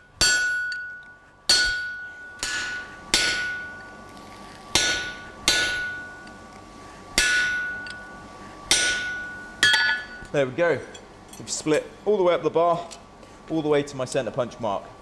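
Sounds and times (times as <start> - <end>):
hammer striking hot chisel: 0.0 - 3.9, 4.7 - 6.4, 7.2 - 10.3
lingering metallic ring: 0.0 - 4.1, 4.7 - 6.4, 7.2 - 11.4.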